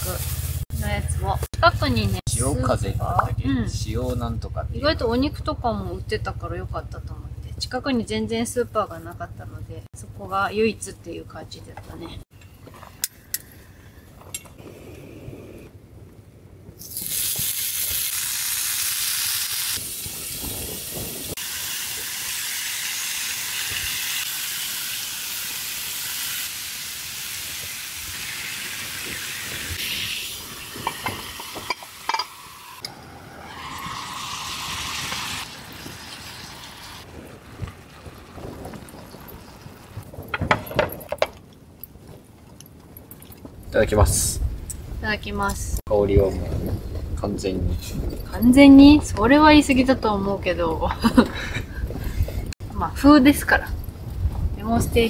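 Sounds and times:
food sizzling in a pan: 0:00.0 - 0:00.9, 0:16.8 - 0:37.1.

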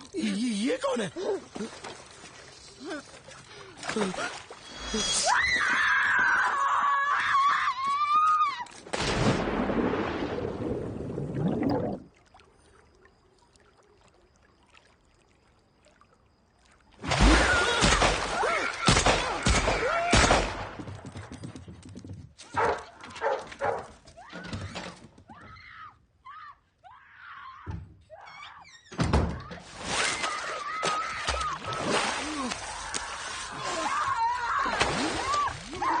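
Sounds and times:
woman screaming: 0:33.5 - 0:36.0.

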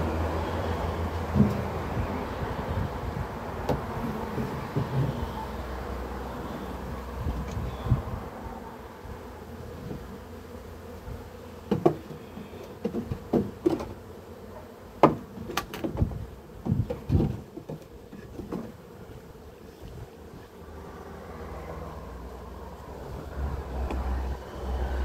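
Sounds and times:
bees buzzing: 0:00.0 - 0:25.0
wooden frames knocking: 0:11.7 - 0:12.1.

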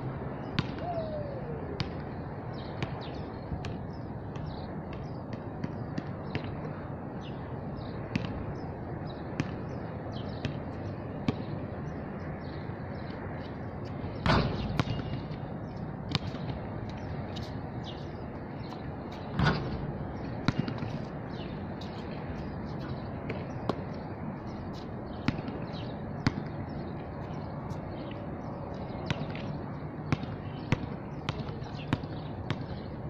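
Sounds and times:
outdoor background noise: 0:00.0 - 0:33.0
ball bouncing on court: 0:00.5 - 0:02.0, 0:02.8 - 0:06.6, 0:08.1 - 0:08.4, 0:09.4 - 0:09.7, 0:14.2 - 0:15.4, 0:16.1 - 0:16.6, 0:20.4 - 0:21.5, 0:25.1 - 0:26.8, 0:29.0 - 0:32.8
basketball hitting rim and backboard: 0:19.3 - 0:19.8.

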